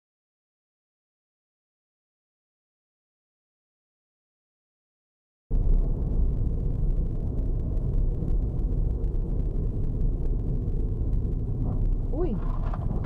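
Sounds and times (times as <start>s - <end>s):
car driving rumble from inside: 5.5s - 13.0s.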